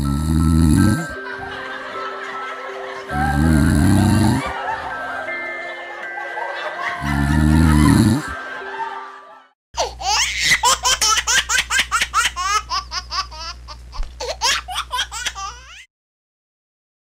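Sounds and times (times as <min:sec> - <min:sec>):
music track: 0:00.0 - 0:09.5
toddler giggling: 0:09.8 - 0:15.8.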